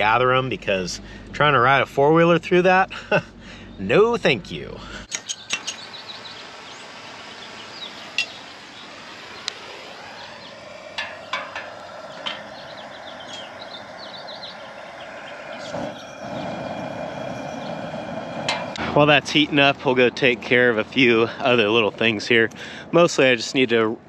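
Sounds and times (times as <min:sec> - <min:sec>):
faint birds chirping: 0:00.0 - 0:18.8
burner flame rushing: 0:05.6 - 0:20.2.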